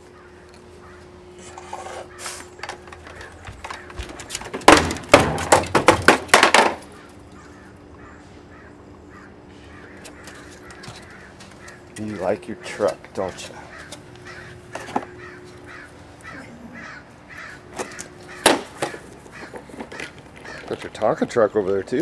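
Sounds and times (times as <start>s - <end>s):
toy truck tumbling down wooden steps: 3.0s - 6.8s.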